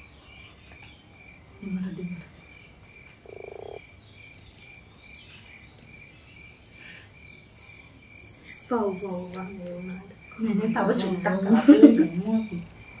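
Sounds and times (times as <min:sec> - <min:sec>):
faint even chirping: 0:00.2 - 0:11.4
short buzzing croak: 0:03.2 - 0:03.9.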